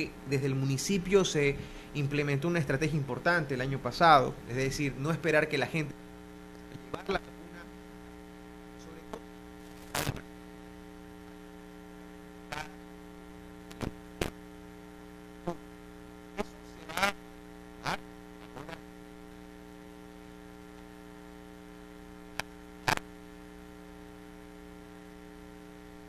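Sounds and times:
electrical mains hum: 0:00.0 - 0:26.0.

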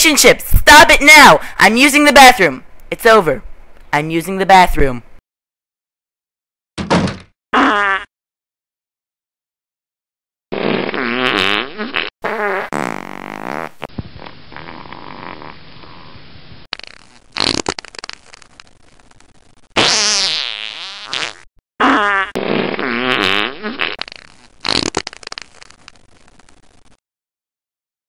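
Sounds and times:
farts: 0:07.6 - 0:08.1, 0:10.5 - 0:15.6, 0:16.7 - 0:27.0.

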